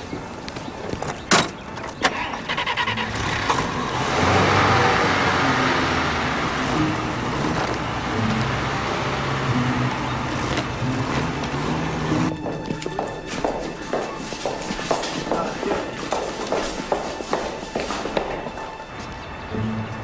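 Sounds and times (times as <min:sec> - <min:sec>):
car engine cranking and running: 0:01.8 - 0:12.3.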